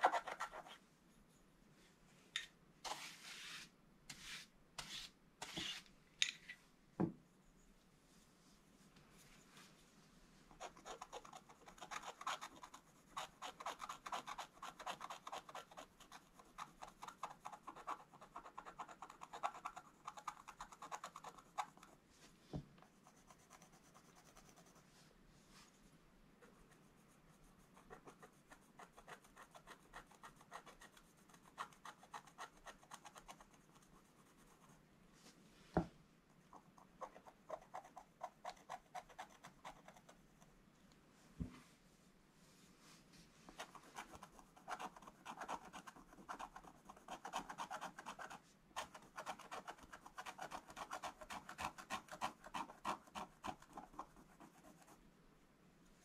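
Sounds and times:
stylus scratching paper: 0.0s - 0.8s, 10.5s - 21.9s, 26.4s - 34.8s, 43.6s - 55.0s
soft knock: 7.0s - 7.2s.

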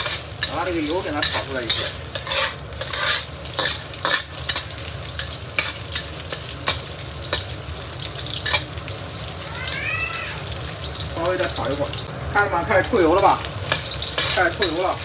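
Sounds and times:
metal spatula scraping a wok: 0.0s - 7.5s, 8.3s - 8.7s, 13.5s - 15.0s
meat sizzling in hot oil: 0.0s - 15.0s.

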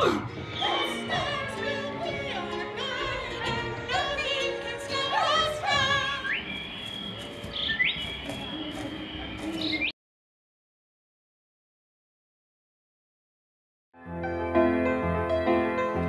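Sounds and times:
operatic singing with music: 0.0s - 6.6s.

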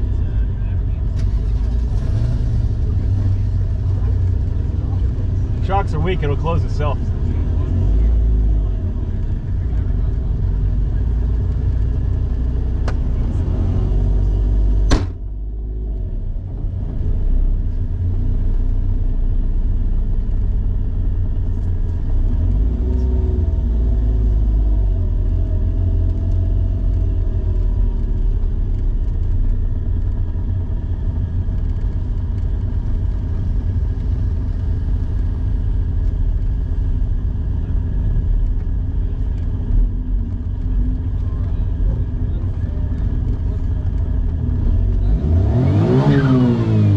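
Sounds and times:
small engine low rumble: 0.0s - 46.9s
sharp thump: 14.8s - 15.3s.

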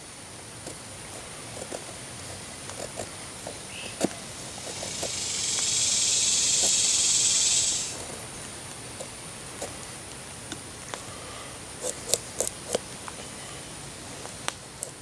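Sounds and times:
knife carving a stick: 1.4s - 8.1s, 11.7s - 13.2s
insect buzzing: 3.0s - 8.0s.

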